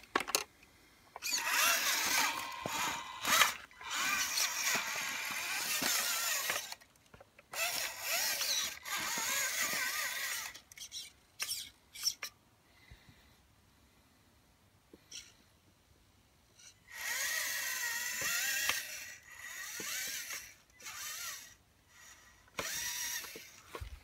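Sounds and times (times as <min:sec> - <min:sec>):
electric motor and gears whining: 0:01.2 - 0:06.9, 0:07.5 - 0:12.3, 0:16.6 - 0:24.0.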